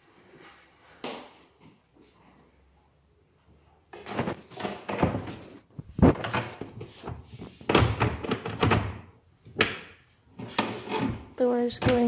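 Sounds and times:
cabinet door knocking and clunking: 0:07.6 - 0:09.9.

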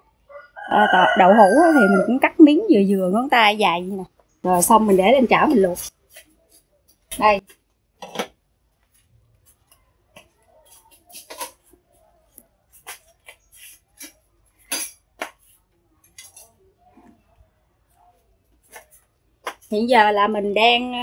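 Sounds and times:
metal cookware clinking: 0:08.0 - 0:08.3, 0:14.0 - 0:15.3, 0:16.0 - 0:16.6.

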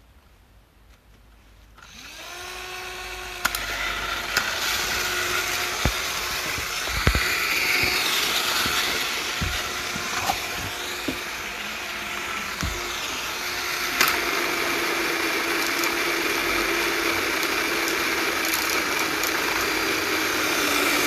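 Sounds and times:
electric screwdriver motor whine: 0:01.8 - 0:21.0
small toy train motors: 0:01.8 - 0:21.0
sharp plastic clicks and knocks: 0:04.3 - 0:11.4.

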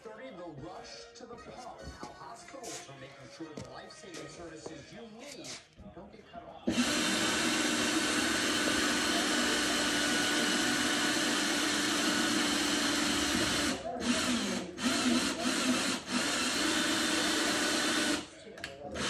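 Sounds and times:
power drill running: 0:06.7 - 0:18.3.

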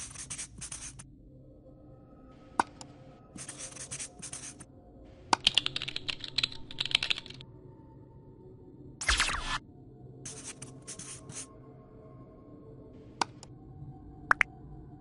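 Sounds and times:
marker scribbling on surface: 0:00.0 - 0:01.0, 0:03.4 - 0:04.6, 0:10.3 - 0:11.5
computer keyboard typing: 0:05.4 - 0:07.4.

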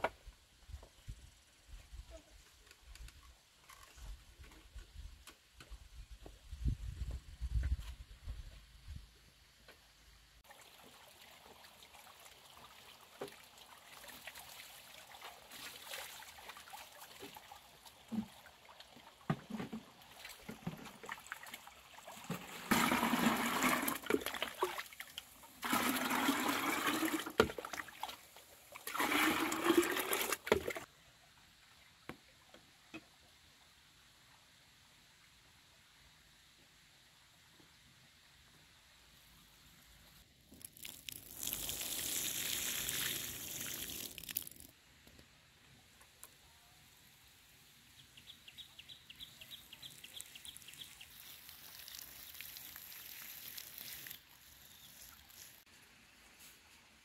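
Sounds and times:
water pouring into a container: 0:20.4 - 0:28.2, 0:28.8 - 0:30.9, 0:40.5 - 0:44.7, 0:49.8 - 0:55.6.

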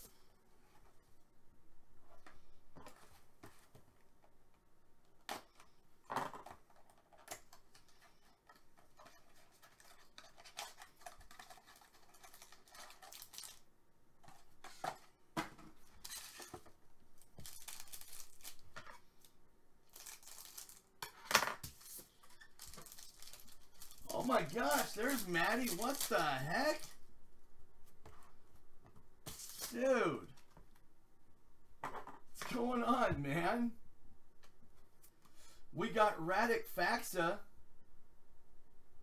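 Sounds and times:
paper and wrapper tearing: 0:09.0 - 0:13.7, 0:17.3 - 0:18.8, 0:19.9 - 0:20.9, 0:21.7 - 0:27.0
scissors cutting foil: 0:22.6 - 0:26.2.

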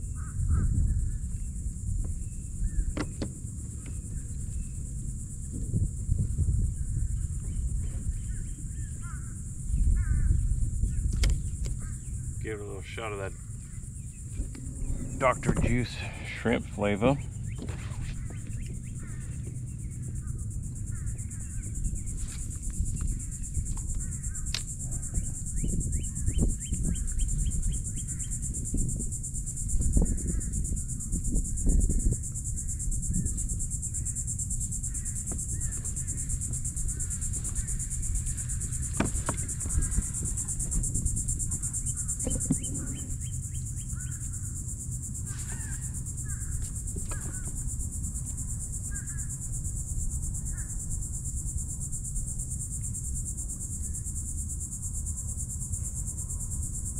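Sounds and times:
low rumble: 0:00.0 - 0:26.3
insects droning: 0:00.0 - 0:56.9
sharp knocks: 0:14.3 - 0:19.6.

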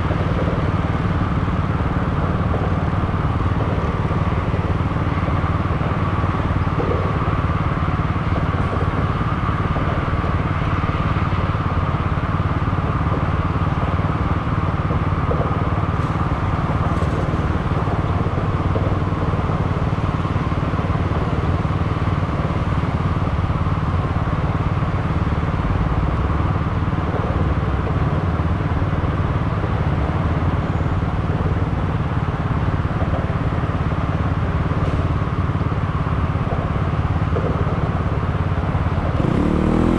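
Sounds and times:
vehicle engine idling: 0:00.0 - 0:39.9.

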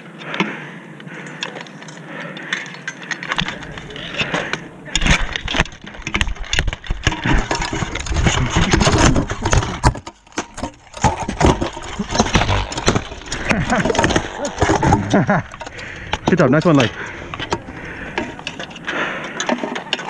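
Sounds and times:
microphone rubbing rumble: 0:12.0 - 0:16.0.

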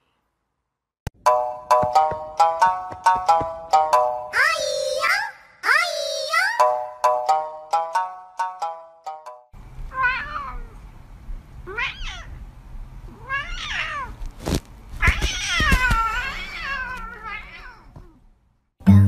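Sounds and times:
cat meowing: 0:09.9 - 0:10.8, 0:11.6 - 0:12.4, 0:13.1 - 0:14.2, 0:15.0 - 0:18.2.

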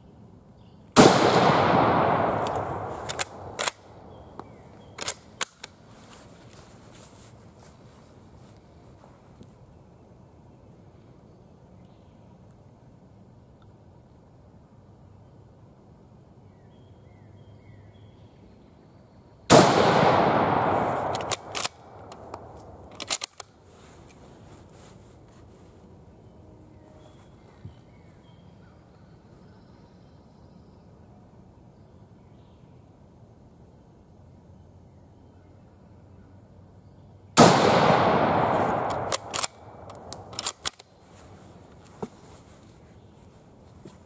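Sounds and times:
rifle shot echo: 0:01.0 - 0:04.0, 0:19.5 - 0:22.8, 0:37.4 - 0:40.7
rifle bolt clicking: 0:02.3 - 0:03.9, 0:21.0 - 0:23.5, 0:38.7 - 0:40.9.

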